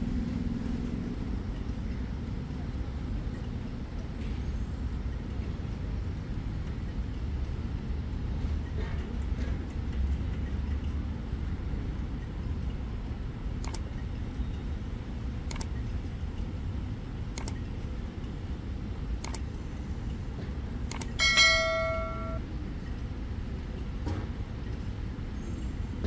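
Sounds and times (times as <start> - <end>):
low rumble of city traffic: 0.0 - 26.0
mouse click sound effects: 15.5 - 15.7, 17.4 - 17.6, 19.2 - 19.4, 20.9 - 21.1
notification bell ding: 21.2 - 22.4.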